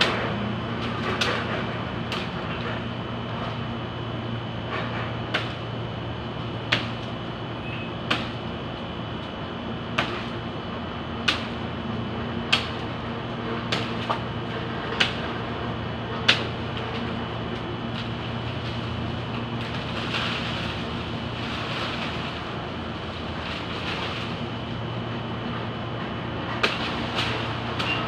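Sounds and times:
steady low hum: 0.0 - 28.0
machete chopping branches: 6.7 - 7.0, 8.1 - 8.4, 11.2 - 11.6, 12.5 - 12.8, 13.7 - 14.2, 15.0 - 15.2, 26.6 - 28.0.

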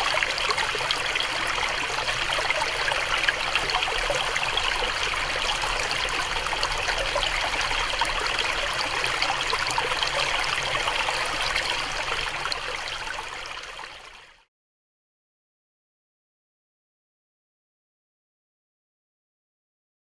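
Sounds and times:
stream babbling over rocks: 0.0 - 14.0.

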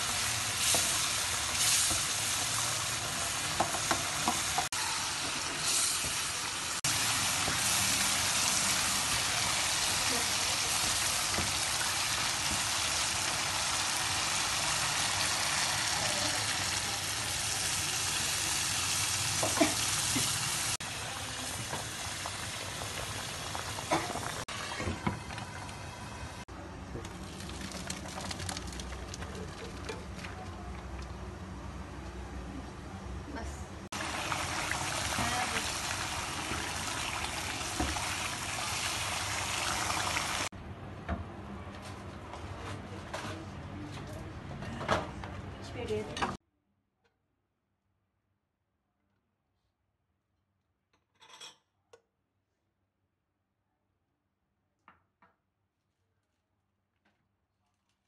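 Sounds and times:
curry sizzling in hot oil: 0.0 - 26.4, 33.9 - 40.5.

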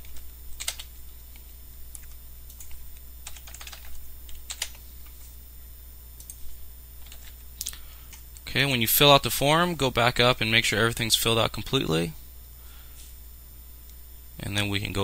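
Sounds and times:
keyboard typing: 0.0 - 1.0, 1.9 - 5.2, 6.2 - 6.4, 7.0 - 7.4
steady low hum: 0.0 - 15.0.

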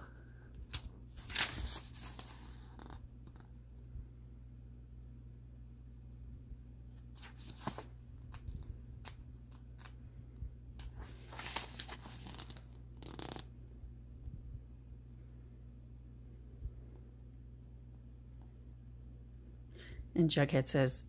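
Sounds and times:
paper pages rustling: 0.4 - 3.4, 7.0 - 10.0, 10.8 - 13.5.

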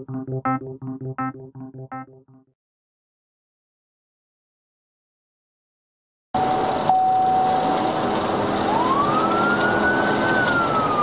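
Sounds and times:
police siren wailing: 6.4 - 11.0
engine and road noise: 7.6 - 11.0.

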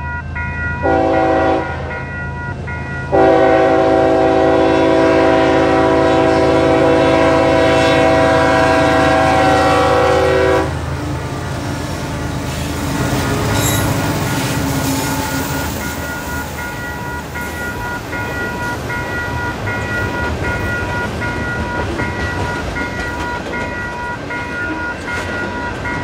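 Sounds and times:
locomotive air horn blasts: 0.8 - 2.0, 3.1 - 11.6.

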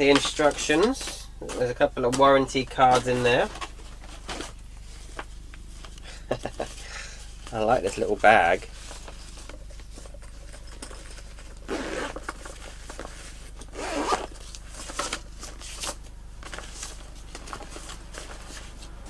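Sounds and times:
zip opening and closing: 11.6 - 12.4, 13.6 - 14.4.

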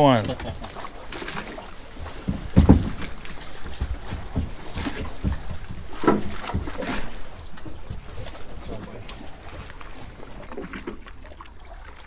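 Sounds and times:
knocks on aluminum boat: 2.2 - 3.1, 3.7 - 6.9.

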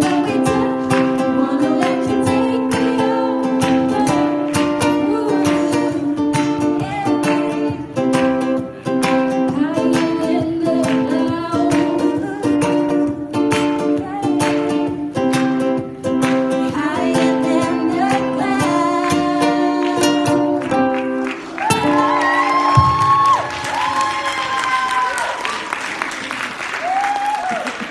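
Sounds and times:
strummed acoustic string instrument: 0.0 - 22.2.

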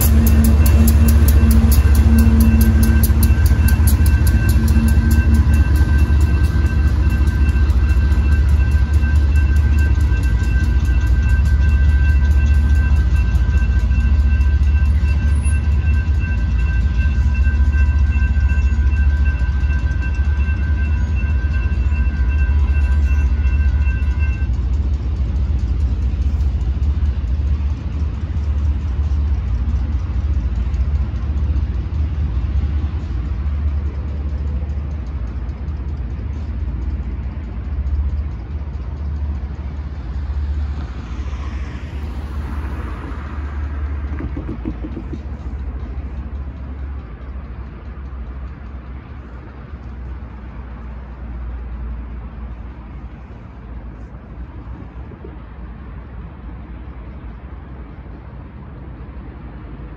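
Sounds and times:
railroad crossing bell ringing: 0.0 - 58.6
low steady rumble: 0.0 - 59.9.

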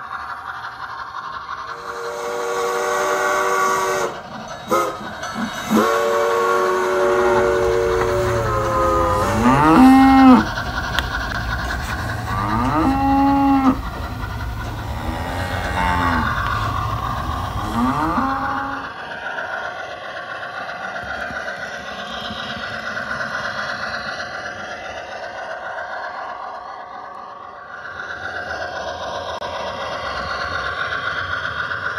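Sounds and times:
low steady rumble: 5.8 - 18.9
cattle mooing: 7.0 - 18.8.

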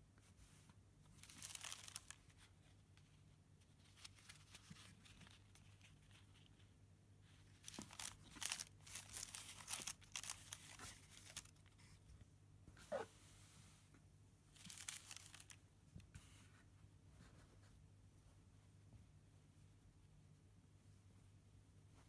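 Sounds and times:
faint low hum: 0.0 - 22.0
tissue paper rustling: 1.2 - 3.1, 3.7 - 11.9, 14.6 - 15.6.

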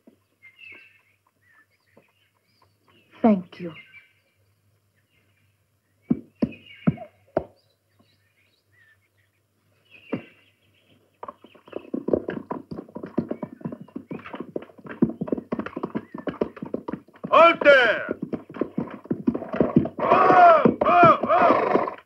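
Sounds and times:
horses' hooves clattering: 0.0 - 3.2, 6.1 - 8.2, 10.0 - 22.0.

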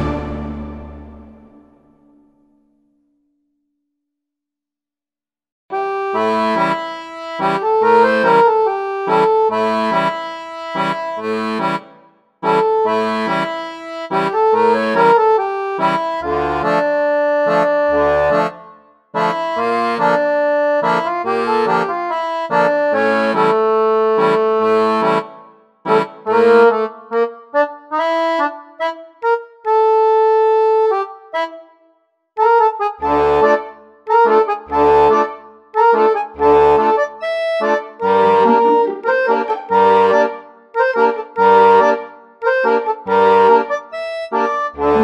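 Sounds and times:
instrumental music with steady beat: 0.0 - 2.8, 5.7 - 45.0.

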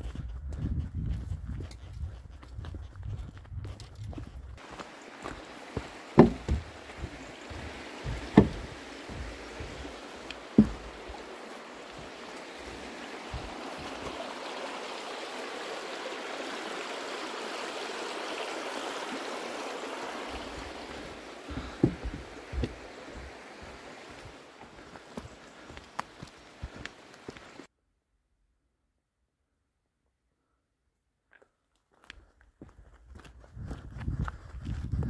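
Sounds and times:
footsteps on wooden planks: 0.0 - 14.2, 20.3 - 27.7
footsteps on a dirt path: 0.0 - 14.4, 20.0 - 27.7, 31.3 - 35.0
stream rushing over rocks: 4.6 - 27.7.

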